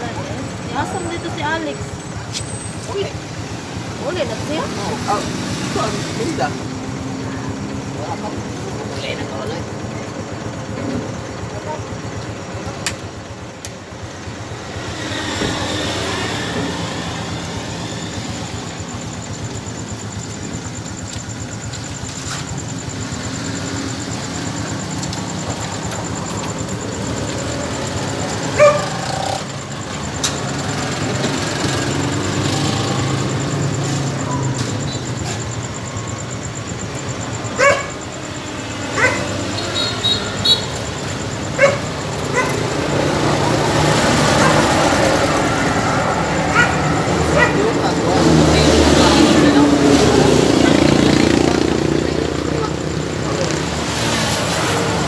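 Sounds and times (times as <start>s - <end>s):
street traffic passing: 0.0s - 55.0s
dog barking: 28.4s - 29.4s, 37.5s - 38.0s, 38.8s - 39.6s, 41.5s - 42.7s, 44.3s - 44.7s, 46.4s - 47.8s.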